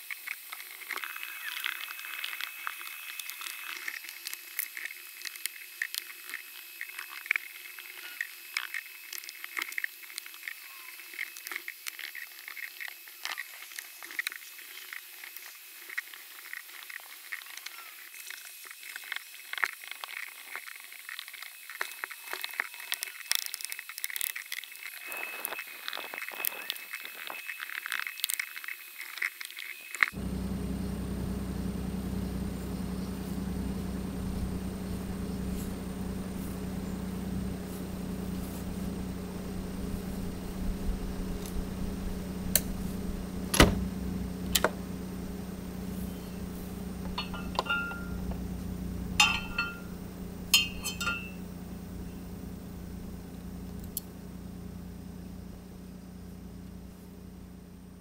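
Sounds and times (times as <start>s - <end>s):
steady low hum: 30.2s - 58.0s
keys and lock clinking: 50.6s - 51.4s.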